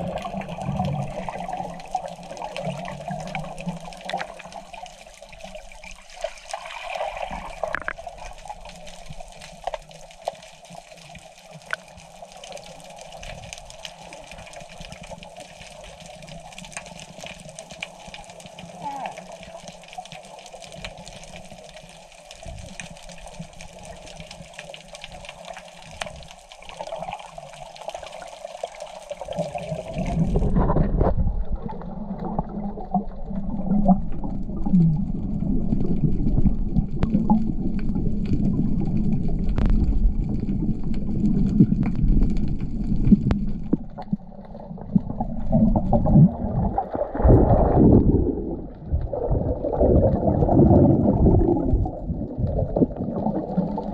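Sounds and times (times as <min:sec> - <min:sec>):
muffled underwater water movement: 0:00.0 - 0:53.9
underwater clicks: 0:02.6 - 0:04.6, 0:07.6 - 0:08.8, 0:11.6 - 0:12.2, 0:36.2 - 0:46.3
low rumble: 0:33.5 - 0:53.9
bubble noise: 0:44.7 - 0:53.9.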